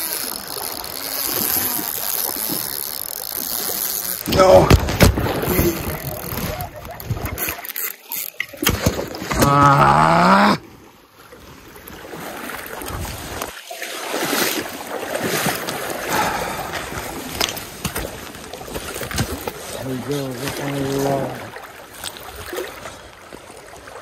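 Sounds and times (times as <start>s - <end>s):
river water rushing and splashing: 10.6s - 24.0s.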